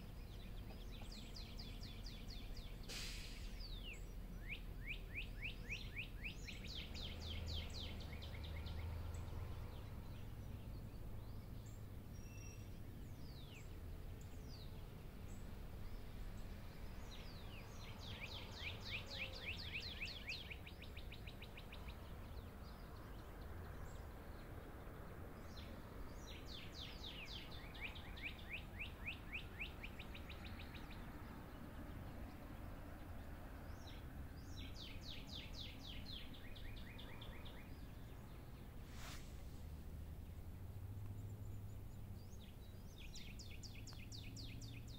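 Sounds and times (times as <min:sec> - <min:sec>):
bird chirps: 0:00.0 - 0:39.4, 0:41.0 - 0:44.9
songbird trilling: 0:00.3 - 0:08.7, 0:12.2 - 0:12.7, 0:17.1 - 0:22.0.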